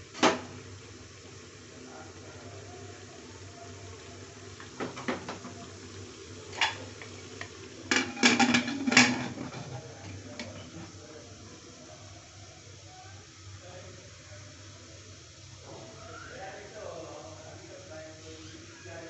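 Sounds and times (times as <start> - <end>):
metal lid clanking and scraping: 7.9 - 10.9.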